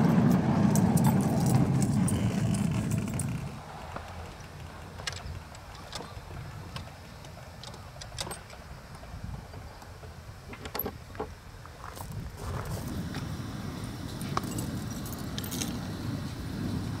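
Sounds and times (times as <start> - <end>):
low steady rumble: 0.0 - 5.5.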